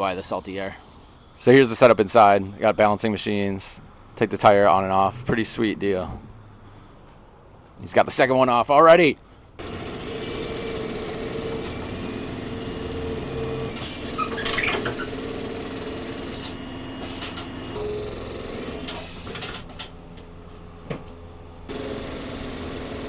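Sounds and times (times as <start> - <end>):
mechanical hum: 9.4 - 23.0
air hissing: 16.3 - 18.0, 18.9 - 19.9.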